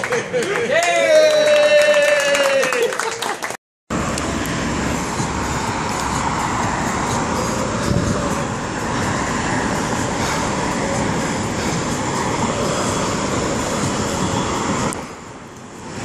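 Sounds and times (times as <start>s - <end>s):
floodwater rushing and splashing: 3.9s - 16.0s.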